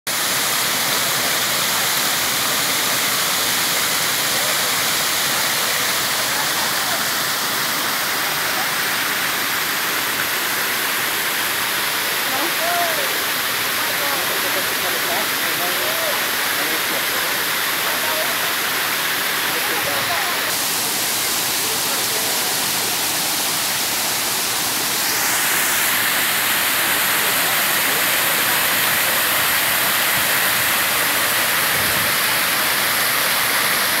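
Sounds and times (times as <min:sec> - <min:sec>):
water rushing over rocks: 0:00.1 - 0:34.0.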